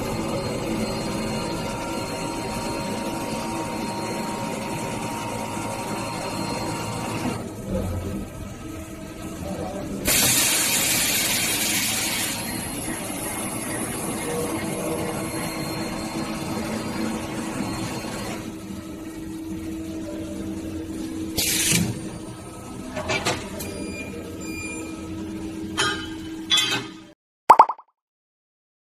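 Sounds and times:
machine air hiss: 10.1 - 12.4.

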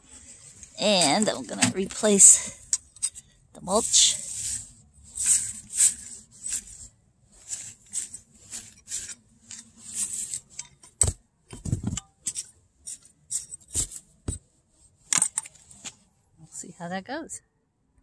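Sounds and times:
hand tools scraping soil: 0.2 - 2.6, 3.6 - 11.0.

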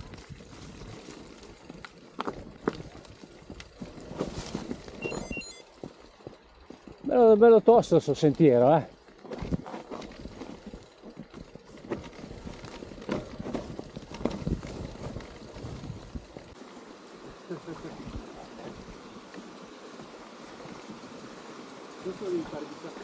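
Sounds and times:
bike knocking and rattling: 0.0 - 5.0, 5.7 - 23.0
tyres crunching on stones: 0.0 - 5.0.

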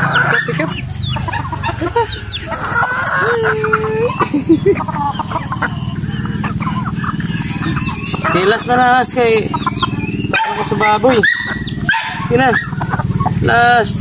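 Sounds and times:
chickens clucking and chirping: 0.0 - 14.0
chicken long held call: 1.2 - 8.5.

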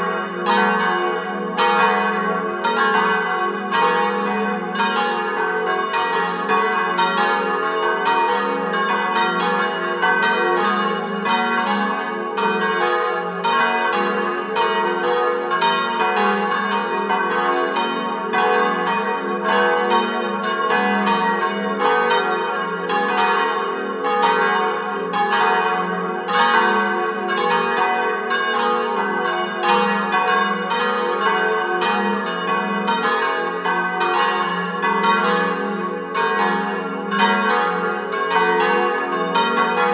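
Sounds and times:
church bells ringing in peal: 0.0 - 39.9.

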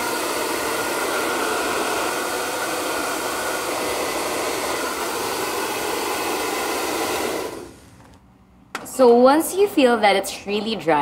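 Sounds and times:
hair dryer blowing: 0.0 - 8.0.

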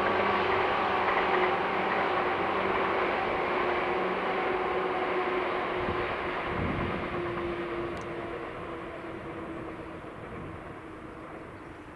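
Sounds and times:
electric train rumbling: 0.0 - 11.9.

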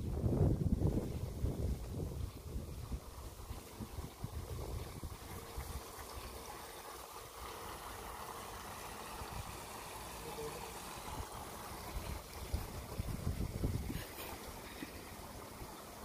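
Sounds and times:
wind buffeting microphone: 0.0 - 5.9, 11.1 - 14.1
stream water trickling: 0.0 - 16.0.

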